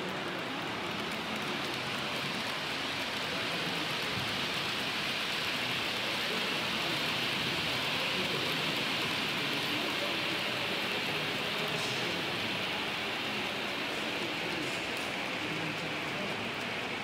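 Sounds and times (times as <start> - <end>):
model trains rolling on track: 0.0 - 17.0.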